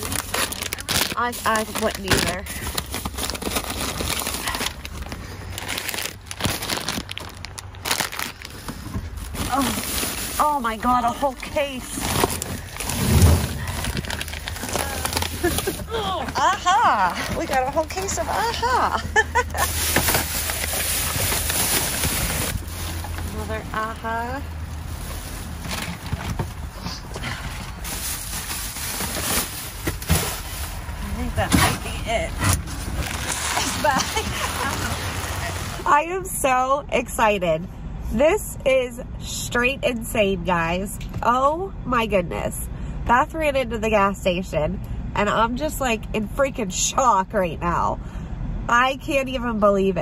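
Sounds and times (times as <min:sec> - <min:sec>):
plastic wrappers crinkling: 0:00.0 - 0:26.7, 0:27.7 - 0:31.3
trash bags and cardboard rustling: 0:00.0 - 0:35.9.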